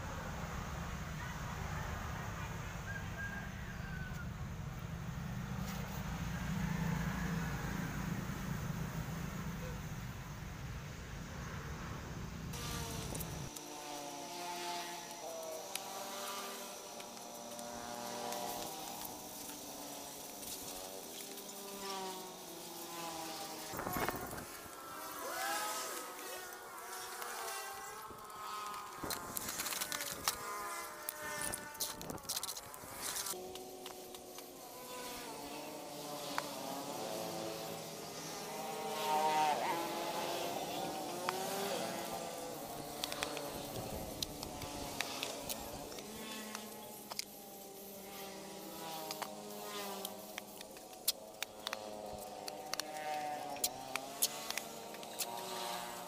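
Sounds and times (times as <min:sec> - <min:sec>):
fly buzzing: 0:12.5 - 0:56.0.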